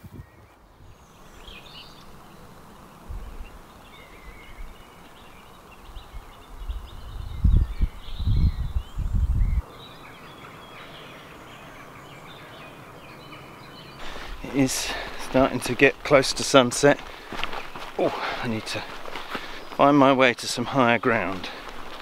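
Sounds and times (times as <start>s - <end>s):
birds chirping: 0.0s - 22.0s
steady outdoor hiss: 0.0s - 22.0s
wind buffeting microphone: 3.0s - 4.9s, 5.8s - 9.7s.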